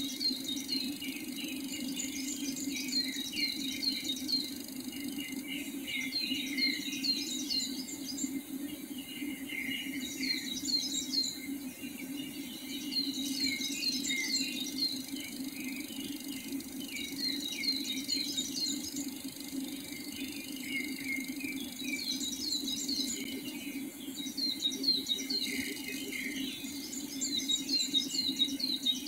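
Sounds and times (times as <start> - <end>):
steady low hum: 0.0 - 29.0.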